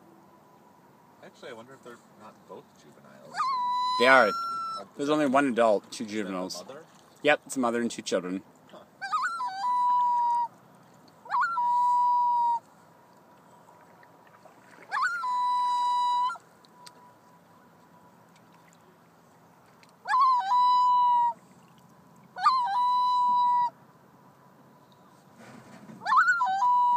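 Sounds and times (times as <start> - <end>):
loon calling: 3.3 - 5.0, 9.0 - 10.6, 11.2 - 12.7, 14.7 - 17.4, 20.0 - 21.5, 22.3 - 23.8, 26.0 - 26.9.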